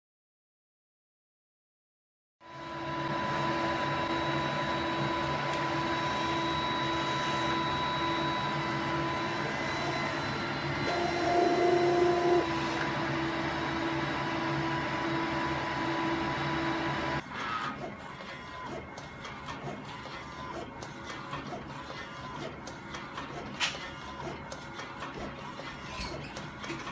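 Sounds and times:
higher machine tone: 2.4s - 17.2s
printer machine hum: 2.5s - 26.9s.

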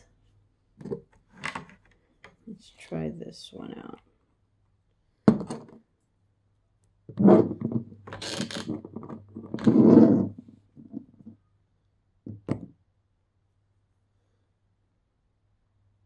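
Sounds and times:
plastic rubbing and scraping: 7.1s - 11.4s.

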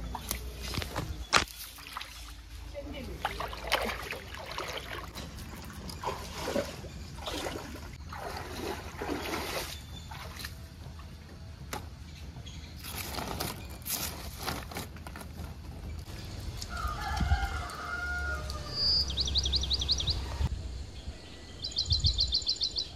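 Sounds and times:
stream water trickling: 1.3s - 11.1s.

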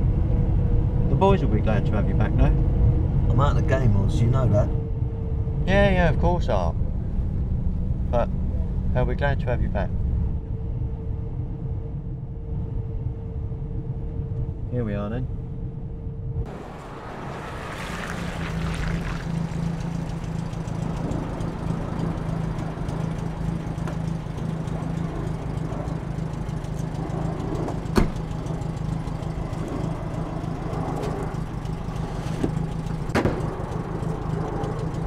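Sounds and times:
car engine idling: 16.4s - 35.0s
car door shutting: 27.7s - 28.4s, 32.3s - 33.5s.

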